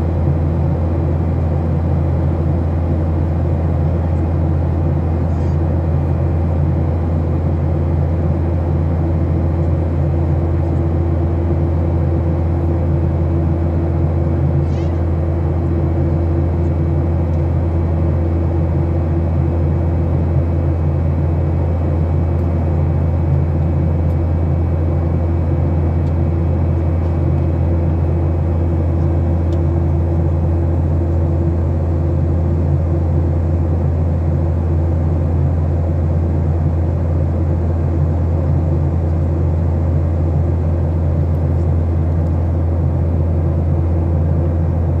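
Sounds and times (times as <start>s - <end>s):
airliner cabin engine drone: 0.0s - 45.0s.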